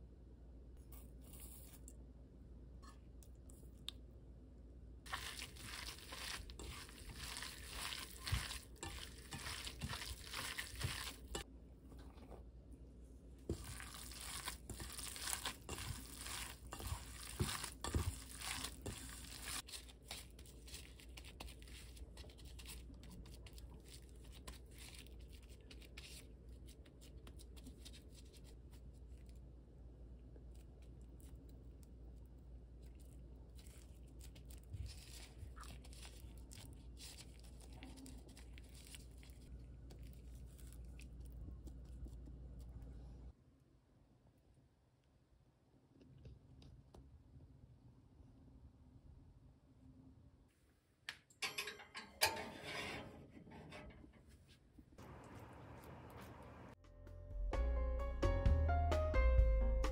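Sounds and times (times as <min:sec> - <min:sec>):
hand kneading wet ground meat: 0:05.0 - 0:11.5, 0:13.4 - 0:29.3, 0:30.4 - 0:42.9
squelching and crinkling: 0:05.0 - 0:43.3, 0:53.5 - 0:56.8.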